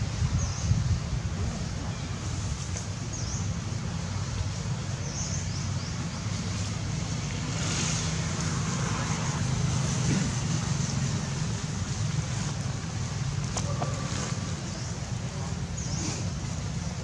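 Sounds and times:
wind buffeting microphone: 0.0s - 4.8s.

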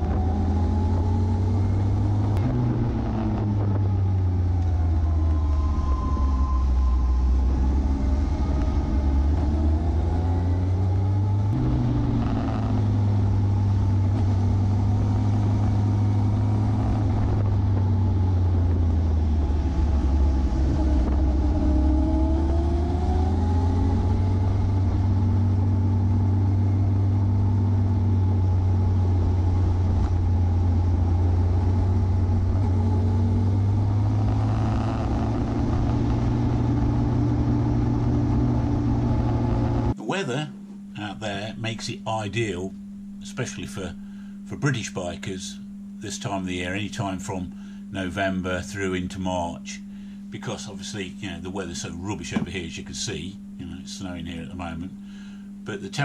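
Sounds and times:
wind rumble on microphone: 0.0s - 33.0s
motorcycle engine running: 0.0s - 40.0s.

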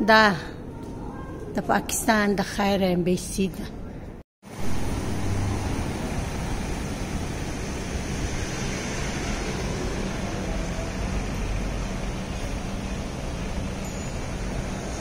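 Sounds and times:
road traffic hum: 4.4s - 15.0s.

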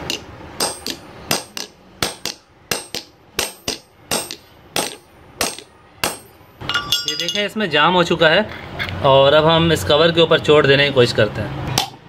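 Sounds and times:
hammer striking metal bolt: 0.0s - 7.4s.

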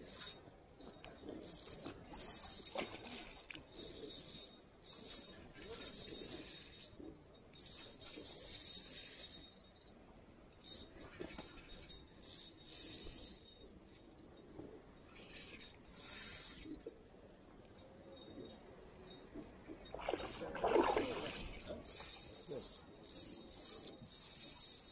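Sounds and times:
fishing reel whirring: 0.0s - 0.4s, 1.3s - 7.0s, 7.6s - 9.8s, 10.6s - 13.6s, 15.5s - 16.8s, 21.5s - 24.9s.

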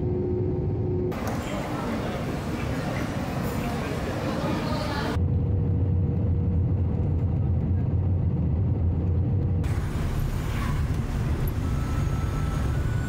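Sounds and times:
low vehicle rumble: 0.0s - 13.0s.

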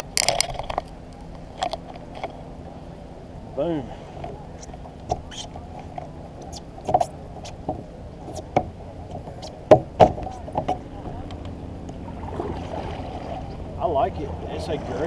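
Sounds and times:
steady low background noise: 0.0s - 15.0s
paddle knocking on kayak hull: 6.9s - 10.8s.

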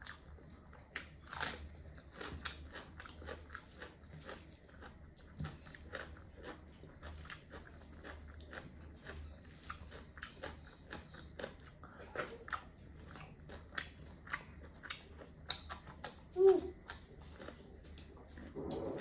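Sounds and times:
person chewing wetly: 0.0s - 19.0s.

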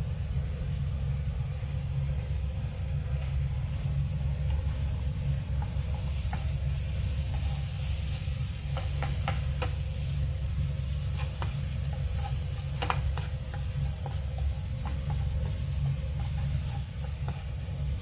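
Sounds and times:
steady low hum: 0.0s - 18.0s
garlic sizzling in a pan: 4.5s - 18.0s.

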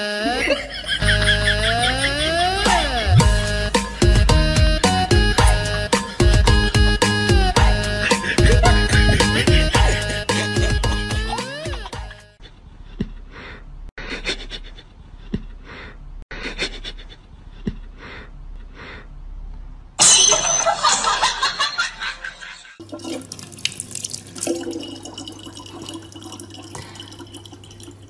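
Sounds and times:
regular background beat: 1.0s - 12.4s
tap water running into bottle: 22.8s - 28.0s.

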